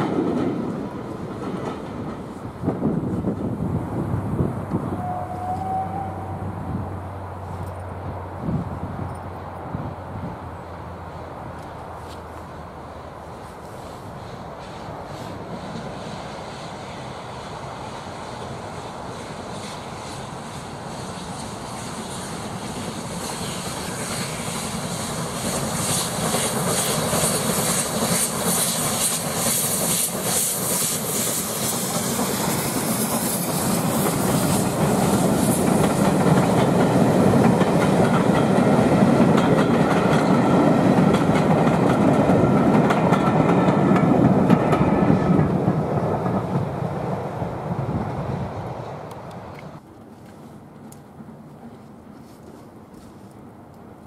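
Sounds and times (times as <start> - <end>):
train wheels clattering on rails: 0.0 - 3.7, 13.5 - 48.2
steam locomotives working hard: 0.0 - 49.8.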